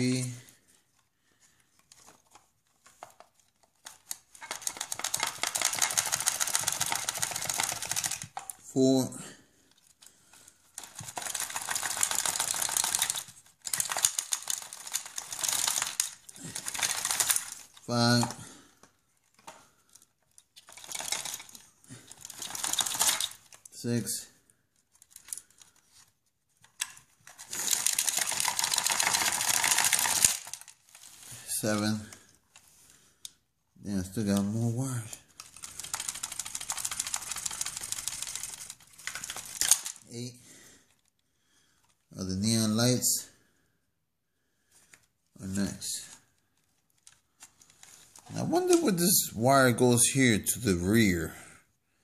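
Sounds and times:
wires tugged from plastic chassis: 0:00.9 - 0:08.7, 0:09.7 - 0:24.0, 0:24.8 - 0:33.4, 0:34.3 - 0:40.1
rapid clicking and rattling: 0:01.8 - 0:08.6, 0:09.8 - 0:18.4, 0:19.3 - 0:23.7, 0:26.6 - 0:31.2, 0:35.2 - 0:40.1.

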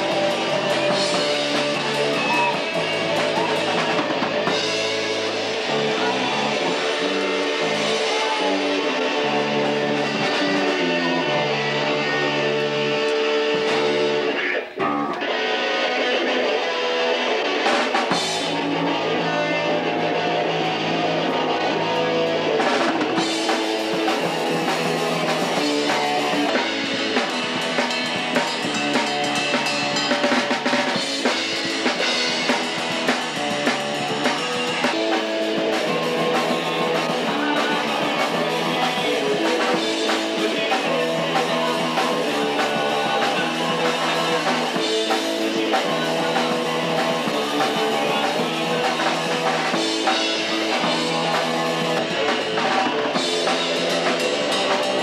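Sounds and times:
bass guitar: 0:00.0 - 0:55.0
drum kit beat: 0:00.0 - 0:55.0
electric guitar chords: 0:00.0 - 0:55.0.

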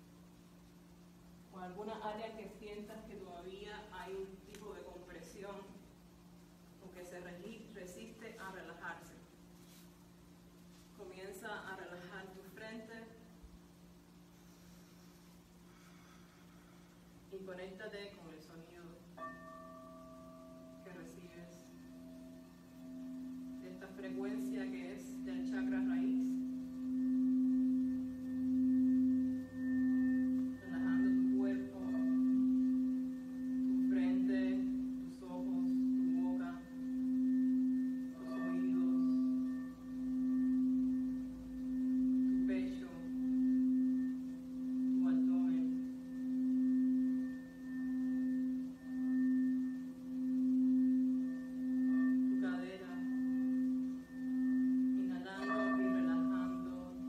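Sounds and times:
singing bowl low tone: 0:18.2 - 0:57.0.

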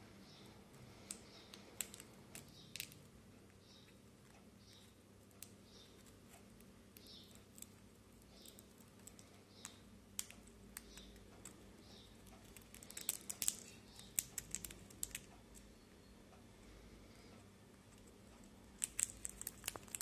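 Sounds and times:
parrot beak cracking seed: 0:18.8 - 0:20.0.

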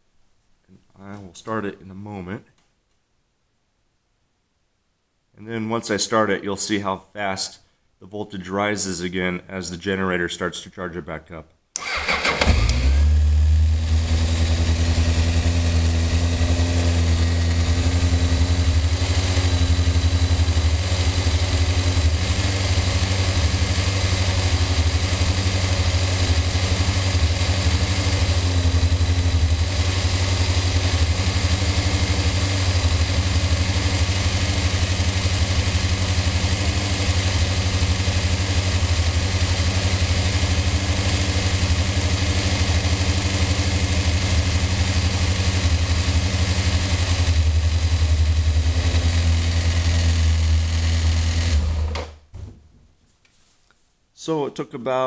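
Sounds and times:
motorcycle engine starting: 0:11.8 - 0:52.5
motorcycle engine idling: 0:13.0 - 0:51.6.

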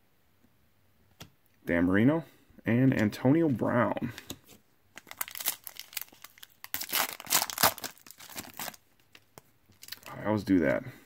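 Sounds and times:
foil wrapper tearing and crinkling: 0:05.0 - 0:10.1.

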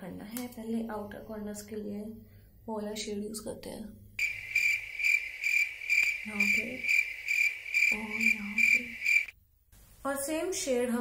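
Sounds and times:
cricket chirping: 0:04.2 - 0:09.4.

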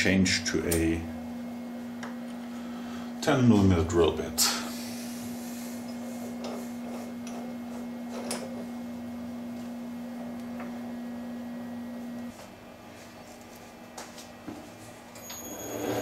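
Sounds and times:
metal lathe humming: 0:04.5 - 0:12.3.

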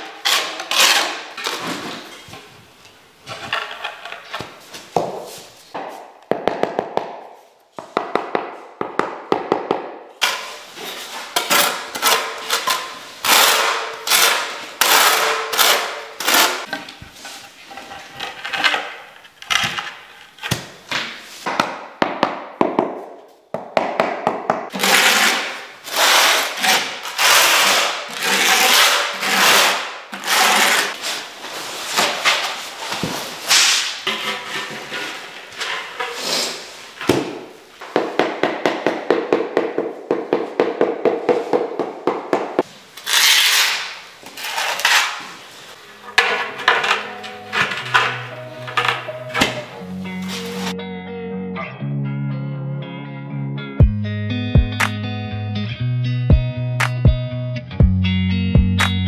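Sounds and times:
tiles scraping in adhesive: 0:00.0 - 0:02.4, 0:03.2 - 0:04.9, 0:10.2 - 0:21.5, 0:24.7 - 0:37.2, 0:42.6 - 0:49.7.

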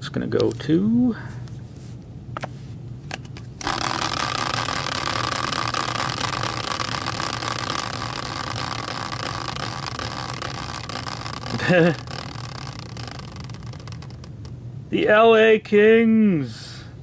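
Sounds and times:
spinning wheel rattling whir: 0:03.5 - 0:15.2.

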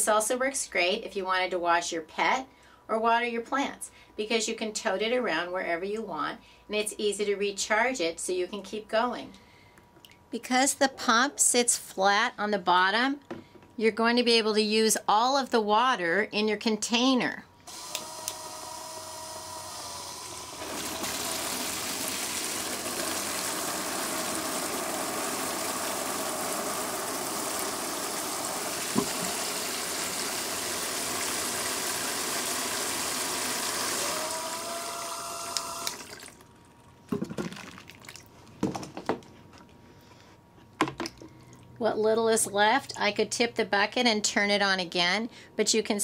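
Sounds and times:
pump whine: 0:17.7 - 0:36.5
water spraying into plastic tub: 0:20.5 - 0:36.5.

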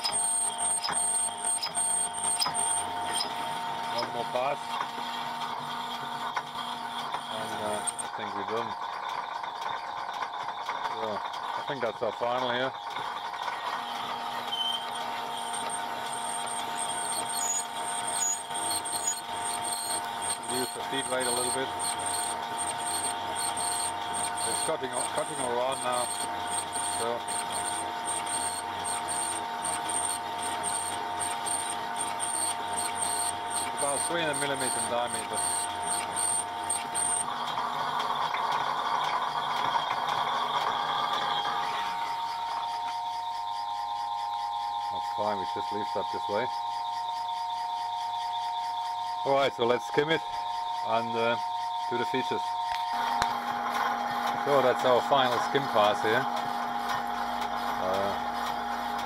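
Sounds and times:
thin high whine: 0:00.0 - 0:04.6, 0:14.2 - 0:37.3
lathe machine drone: 0:00.0 - 0:08.8, 0:11.4 - 0:59.0.

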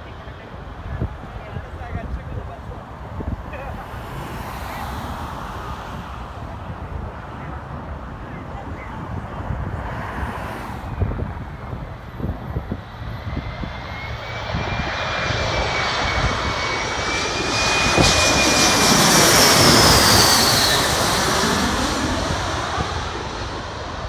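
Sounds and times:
jet passing low overhead: 0:00.0 - 0:24.0
high engine whine: 0:10.9 - 0:24.0.

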